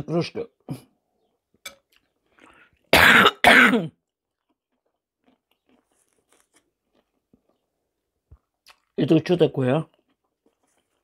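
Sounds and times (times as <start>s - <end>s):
woman coughing: 3.0s - 4.0s.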